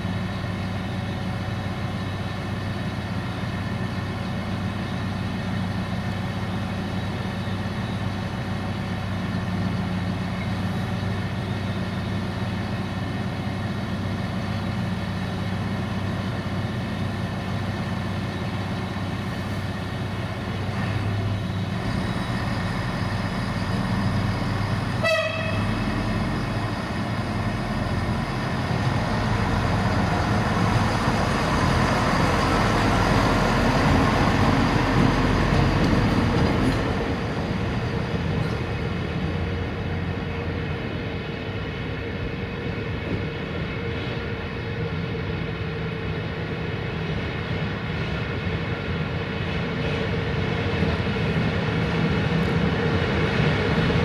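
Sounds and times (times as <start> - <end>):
train rumbling on rails: 0.0 - 54.0
train horn toot: 25.0 - 25.8.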